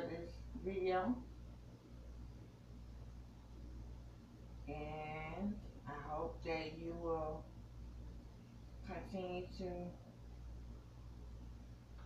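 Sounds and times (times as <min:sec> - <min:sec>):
woman speaking: 0:00.0 - 0:01.3, 0:04.7 - 0:07.5, 0:08.8 - 0:10.0
low steady hum: 0:00.0 - 0:12.0.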